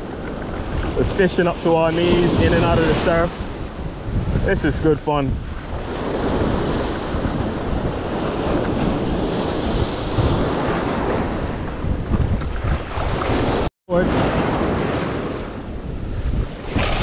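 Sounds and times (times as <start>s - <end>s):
ocean surf on sand beach: 0.0s - 17.0s
wind buffeting microphone: 0.0s - 17.0s.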